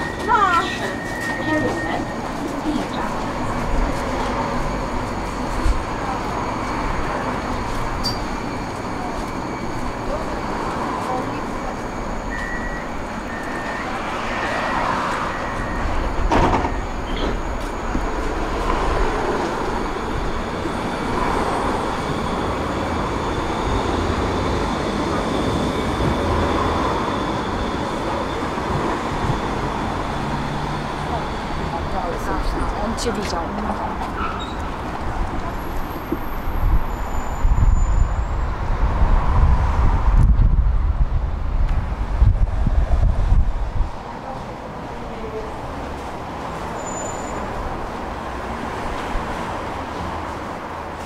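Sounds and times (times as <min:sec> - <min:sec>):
hum of vehicles: 0:00.0 - 0:51.0
tram running: 0:00.0 - 0:51.0
wind buffeting microphone: 0:32.4 - 0:44.2.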